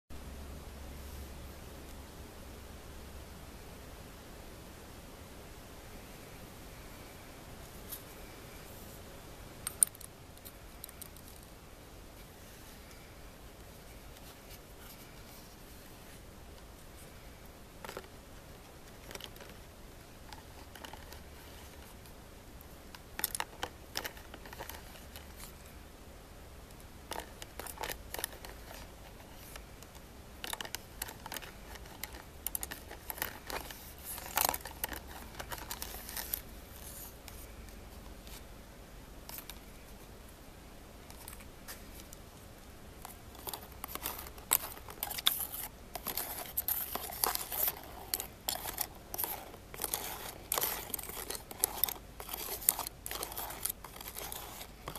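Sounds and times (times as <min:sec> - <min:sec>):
plastic spoon scraping plastic tub: 0:43.0 - 0:54.9.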